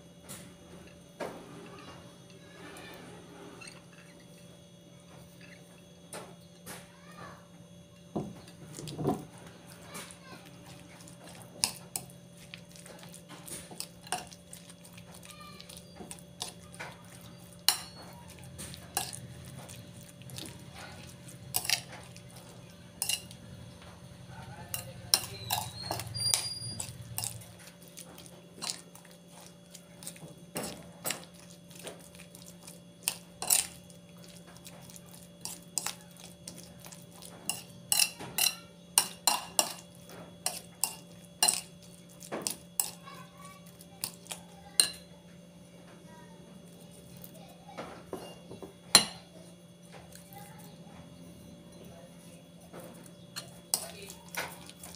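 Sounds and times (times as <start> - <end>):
food mixed by hand in bowl: 8.3 - 45.1, 46.6 - 47.6, 49.9 - 54.9
clinks and knocks against bowl: 24.7 - 27.4.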